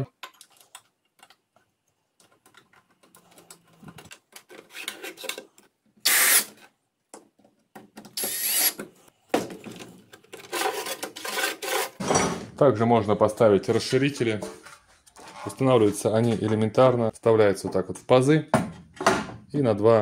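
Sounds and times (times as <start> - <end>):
metal scraping and rubbing: 10.4 - 12.5.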